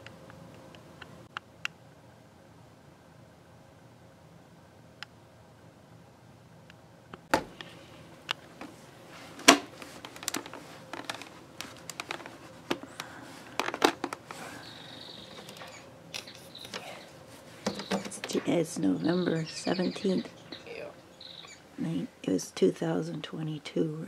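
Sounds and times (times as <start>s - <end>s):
glazed door clicks and knocks: 17.6s - 18.4s.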